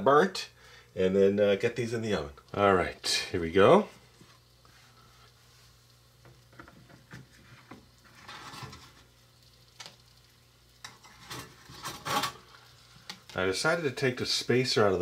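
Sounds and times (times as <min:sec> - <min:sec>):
metal pan scraping into toy oven: 0:08.1 - 0:09.1, 0:10.9 - 0:12.4.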